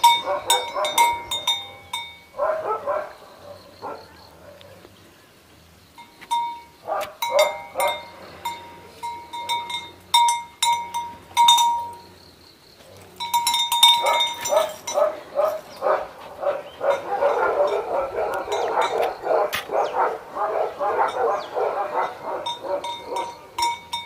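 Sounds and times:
small bell jingling: 0.0 - 2.5, 6.0 - 12.2, 13.1 - 15.9, 22.0 - 24.0
chain clinking: 0.0 - 2.6, 6.0 - 12.2, 12.9 - 16.0, 16.8 - 19.5, 21.0 - 24.0.

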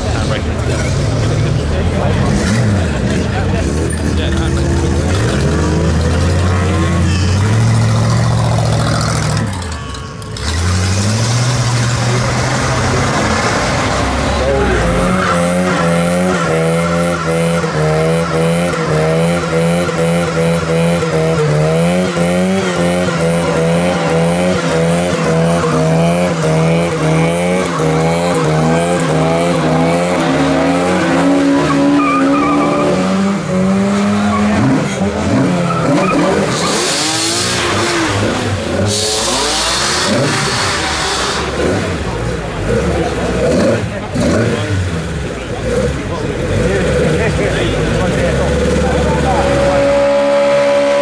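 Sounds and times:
car engine at high revs: 0.0 - 51.0
tyres squealing: 22.2 - 41.5.

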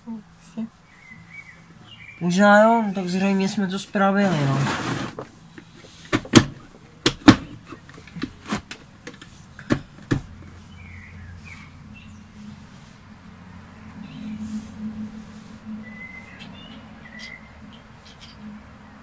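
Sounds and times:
hollow plastic knocks: 6.1 - 10.5.

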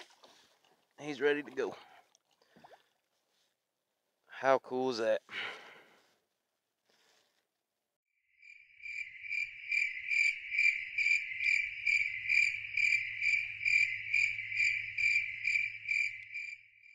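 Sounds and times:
insect-like chirping trill: 8.3 - 16.9.

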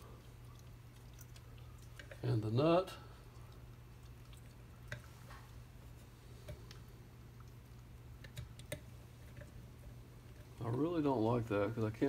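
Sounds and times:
faint low steady hum: 0.0 - 12.0
light clicks and taps of handling: 4.8 - 5.6.

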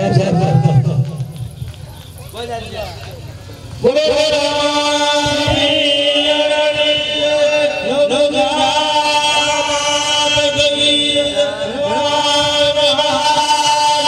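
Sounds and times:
voices chanting in song: 3.8 - 14.0.

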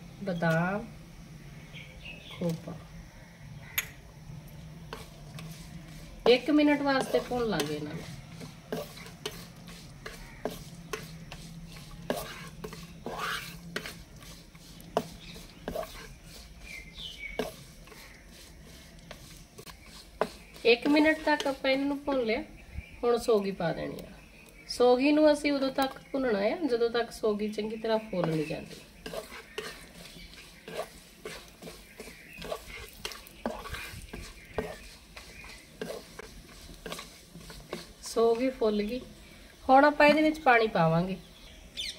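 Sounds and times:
nuts sizzling: 0.0 - 41.9
wooden spatula scraping iron pan: 4.8 - 22.3, 27.5 - 39.2, 39.8 - 40.7.

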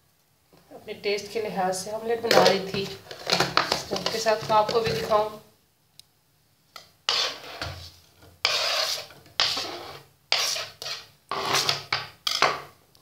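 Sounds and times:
knife scraping chopping board: 2.3 - 5.2, 7.1 - 12.6.

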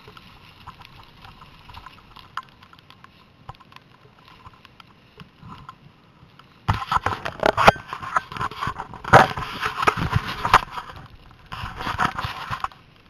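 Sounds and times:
skis scraping over snow: 6.6 - 12.9.

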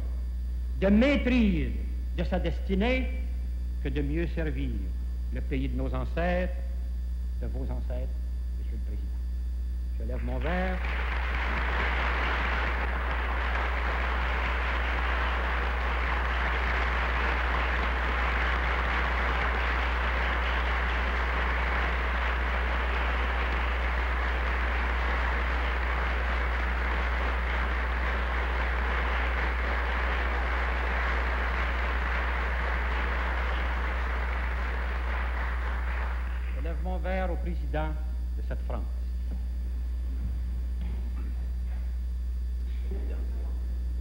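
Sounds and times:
low steady hum: 0.0 - 44.0
audience applauding: 10.2 - 36.9.

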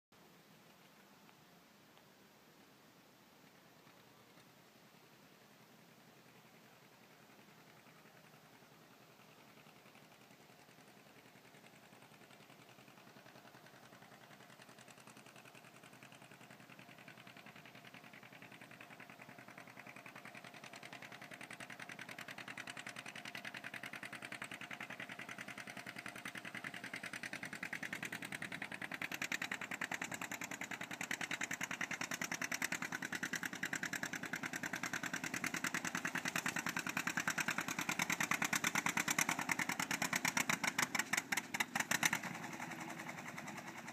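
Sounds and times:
tractor engine popping under load: 13.0 - 43.9.

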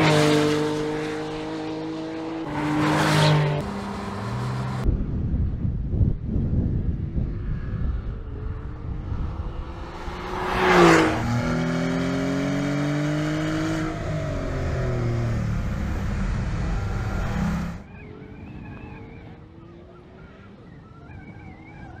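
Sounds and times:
engine revving high: 0.0 - 4.8, 8.7 - 17.8
sports car engine passing by: 0.0 - 4.9, 7.2 - 17.8.

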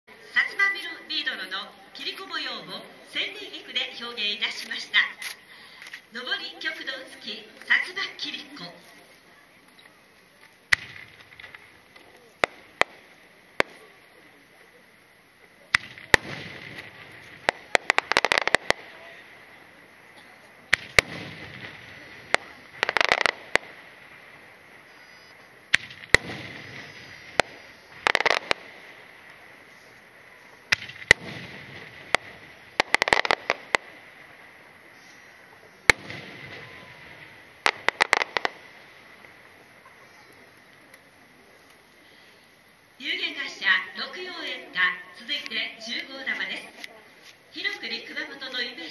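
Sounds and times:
crackling firework reports: 0.1 - 48.9
firework shells bursting: 9.8 - 14.4, 15.4 - 41.8.

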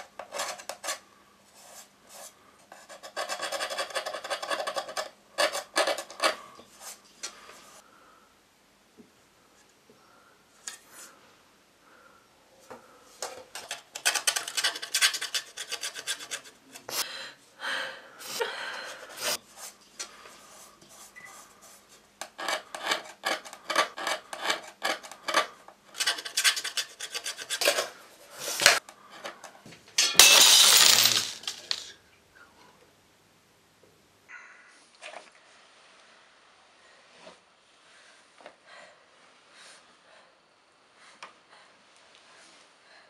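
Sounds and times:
rapid scraping strokes: 13.6 - 17.0.

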